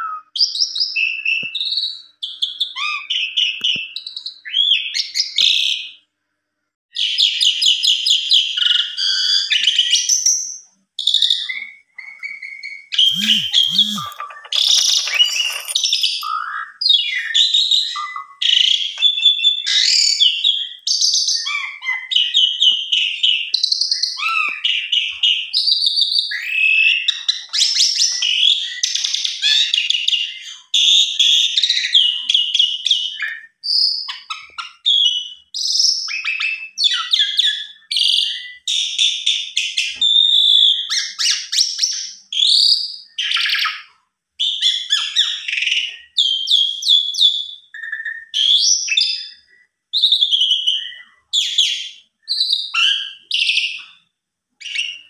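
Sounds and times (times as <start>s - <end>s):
starling singing: 11.4s - 25.5s.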